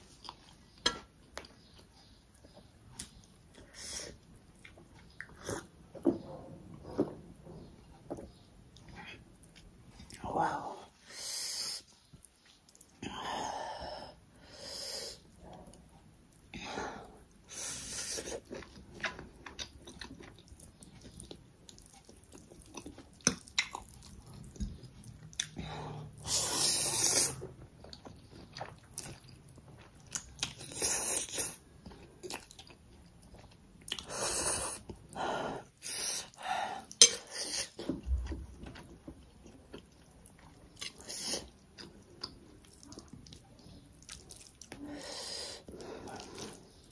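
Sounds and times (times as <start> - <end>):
chewing: 18.2 - 25.7, 27.0 - 35.2, 36.9 - 44.8, 45.7 - 46.9.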